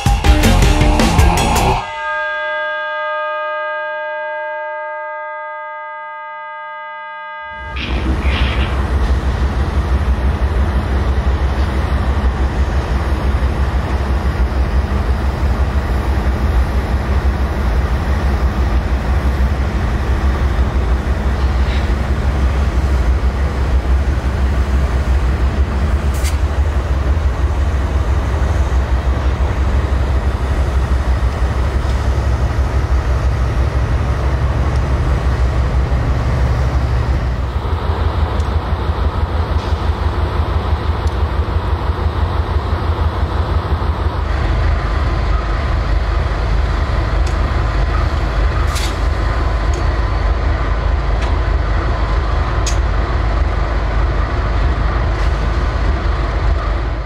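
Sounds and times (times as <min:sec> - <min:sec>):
diesel locomotive engine rumble: 0:00.0 - 0:04.6, 0:07.1 - 0:57.0
rail and wheel noise: 0:00.0 - 0:57.0.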